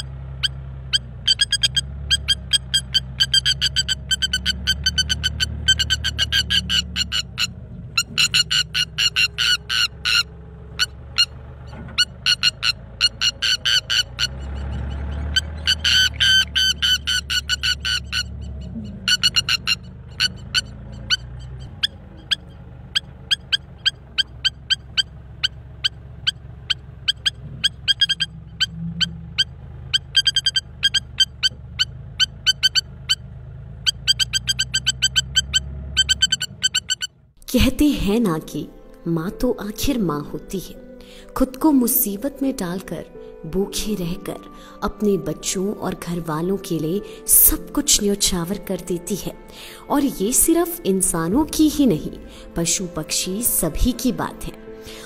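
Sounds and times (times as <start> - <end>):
lapwing alarm calls: 0.0 - 33.2, 33.8 - 37.3
low engine hum: 0.0 - 55.0.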